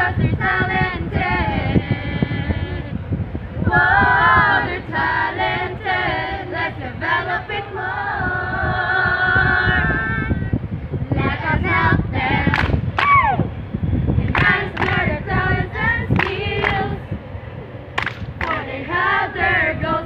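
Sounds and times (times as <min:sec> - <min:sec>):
group of voices singing: 0:00.0 - 0:03.0, 0:03.6 - 0:12.9, 0:14.1 - 0:17.2, 0:18.3 - 0:20.0.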